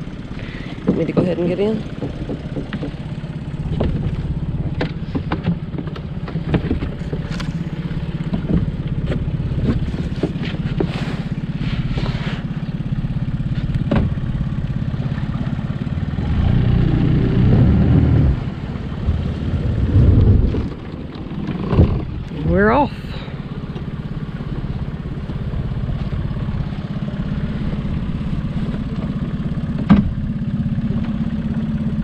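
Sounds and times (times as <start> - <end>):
boat engine idling: 0.0 - 32.0
footsteps knocking on boat: 0.8 - 3.1, 3.7 - 7.3, 13.7 - 14.3.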